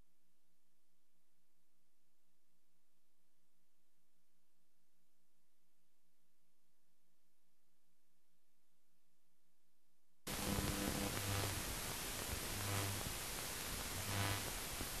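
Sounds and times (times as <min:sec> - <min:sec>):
low hum: 0:10.3 - 0:14.5
loud steady static hiss: 0:10.3 - 0:15.0.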